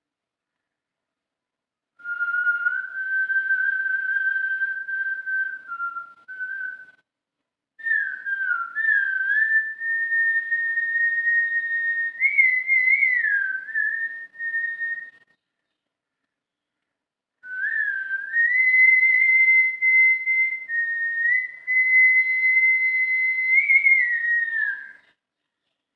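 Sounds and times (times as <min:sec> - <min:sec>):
man whistling: 0:02.0 - 0:07.0, 0:07.8 - 0:15.3, 0:17.4 - 0:25.0.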